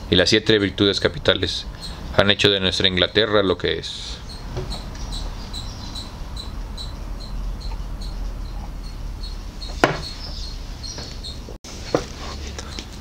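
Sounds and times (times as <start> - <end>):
cricket chirping: 4.3 - 11.4
sharp knock: 9.8 - 10.1.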